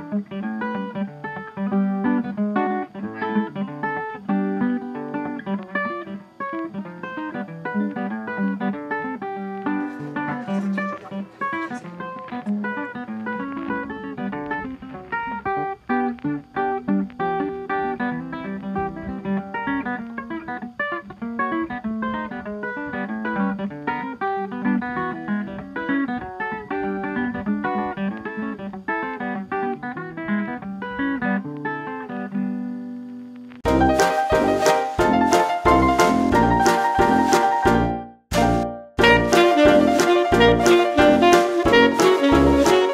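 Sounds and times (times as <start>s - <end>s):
plucked acoustic guitar melody: 0.0s - 42.9s
bright music tune: 33.6s - 42.9s.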